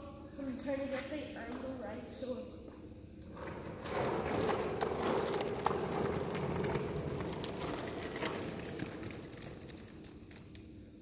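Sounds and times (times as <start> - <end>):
skateboard wheels rolling on concrete: 3.2 - 11.0
skateboard clicks: 3.4 - 10.7.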